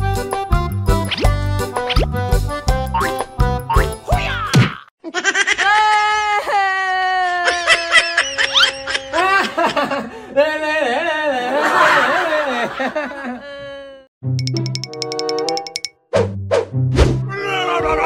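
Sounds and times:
people laughing: 5.0 - 14.0, 17.5 - 18.0
people wailing: 17.4 - 18.0.

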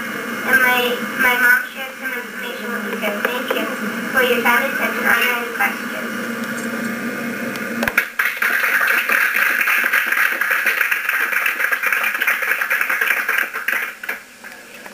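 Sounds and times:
low steady hum: 0.0 - 8.0
audience applauding: 7.9 - 14.6.

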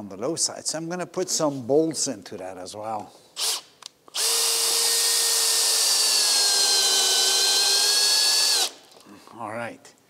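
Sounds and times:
power drill boring into wood: 3.4 - 8.8.

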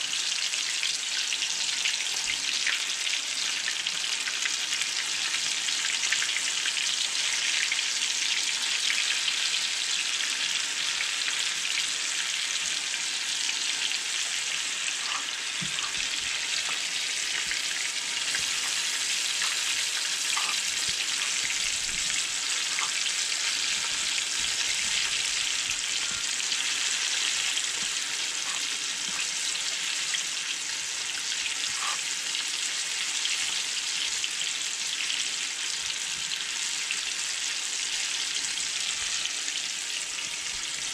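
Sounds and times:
fish deep-frying in hot oil: 0.0 - 40.9.

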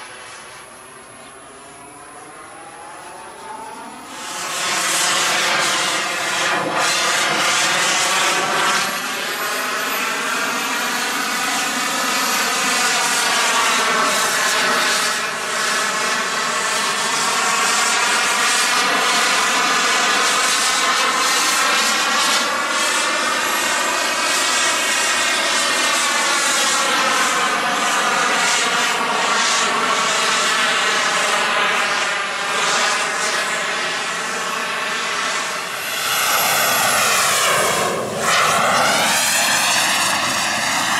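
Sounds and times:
model jet turbine roar: 0.0 - 40.9.

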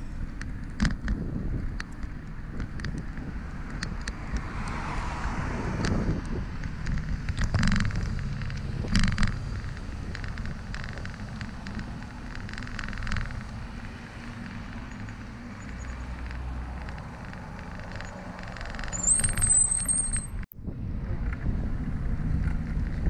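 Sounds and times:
road traffic passing: 0.0 - 23.0
wind rumble on microphone: 0.0 - 23.0
brief high squeal: 19.0 - 20.4.

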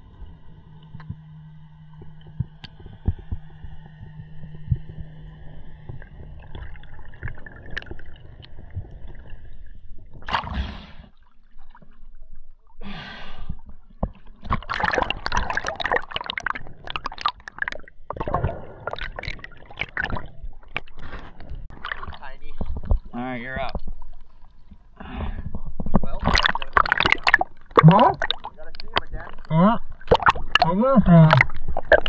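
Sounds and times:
low hum with high tones: 0.0 - 11.0
water sloshing and splashing: 0.0 - 12.8, 13.5 - 32.0.

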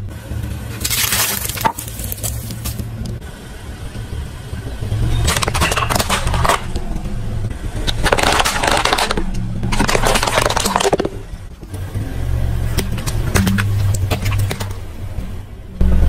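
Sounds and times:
car engine running: 0.0 - 16.0
car tyre crushing plastic: 0.7 - 2.9, 5.3 - 6.9, 7.8 - 11.7.

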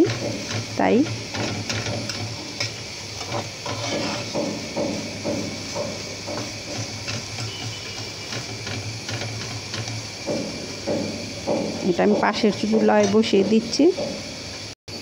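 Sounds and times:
spatula scraping a pan: 0.0 - 13.9
frying sizzle: 0.0 - 15.0.

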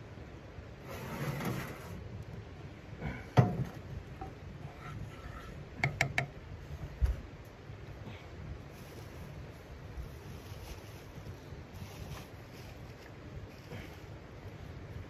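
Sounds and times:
wooden spatula knocking on pan: 5.8 - 6.3.

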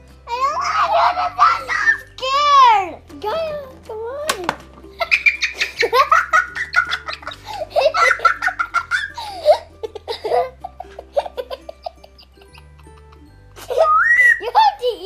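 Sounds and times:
children laughing and shrieking: 0.3 - 2.8, 5.0 - 13.0, 13.6 - 15.0.

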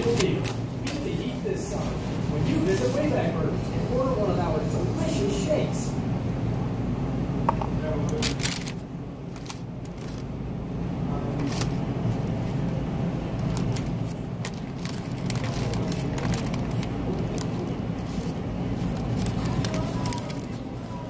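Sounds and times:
low background rumble: 0.0 - 21.0.

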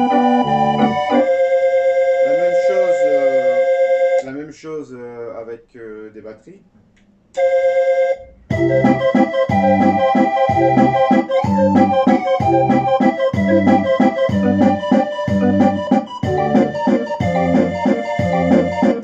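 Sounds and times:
electronic barrel organ tune: 0.0 - 4.4, 7.4 - 19.0
drum and bass accompaniment: 8.5 - 19.0.

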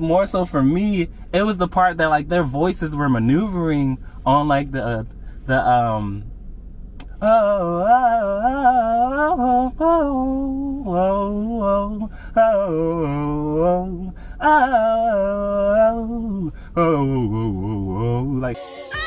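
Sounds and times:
man singing vocal runs: 7.0 - 18.6.

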